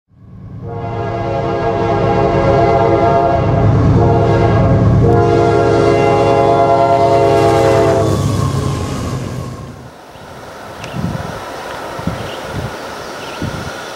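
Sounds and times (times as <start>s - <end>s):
passing train rumble: 0.1s - 13.9s
locomotive air horn blasts: 0.6s - 9.5s.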